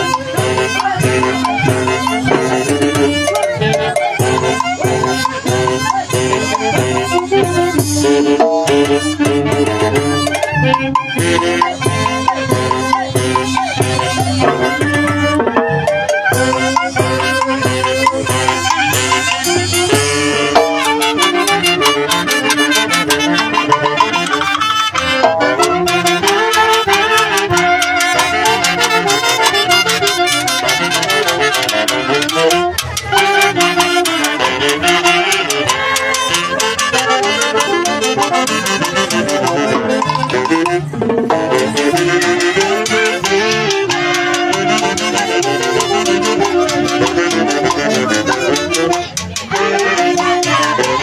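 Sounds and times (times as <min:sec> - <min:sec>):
fast drum beat with cymbals: 0:00.0 - 0:51.0
saxophone melody: 0:00.0 - 0:51.0.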